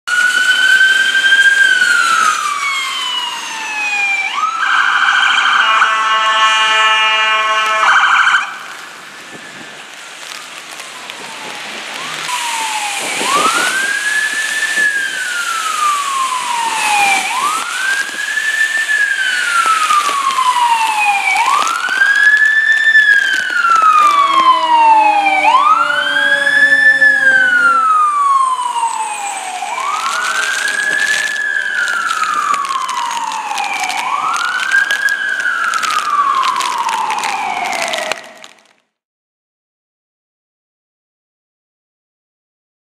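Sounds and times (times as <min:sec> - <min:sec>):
fast-sweeping siren: 0:00.1 - 0:38.6
emergency siren wailing: 0:00.1 - 0:38.8
vehicle horn blast: 0:05.6 - 0:08.0, 0:24.2 - 0:27.9.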